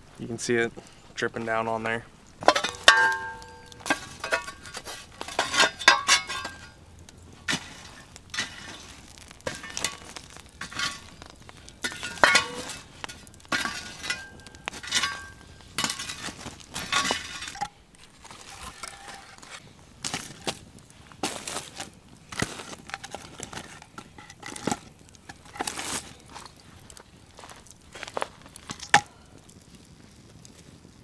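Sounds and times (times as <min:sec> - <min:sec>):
metal shovel scraping rocks: 0:02.4 - 0:26.6.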